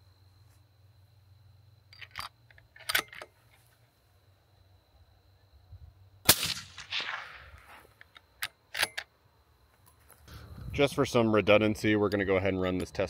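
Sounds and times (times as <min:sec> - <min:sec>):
rifle bolt metallic clicks: 0:01.9 - 0:03.3, 0:08.0 - 0:09.1
suppressed rifle shot with echo: 0:06.2 - 0:07.9.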